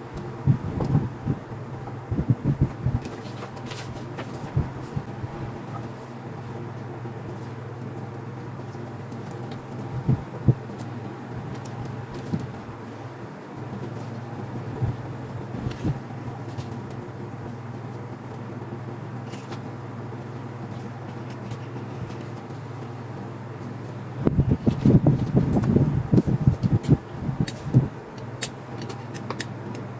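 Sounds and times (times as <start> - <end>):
steady low hum: 0.0 - 29.9
paper sheet handled: 3.0 - 5.0.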